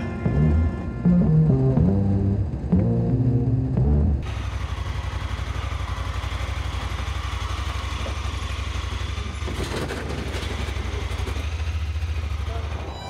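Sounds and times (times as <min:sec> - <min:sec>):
vehicle engine idling: 0:01.4 - 0:13.0
brief clatter: 0:09.4 - 0:11.4.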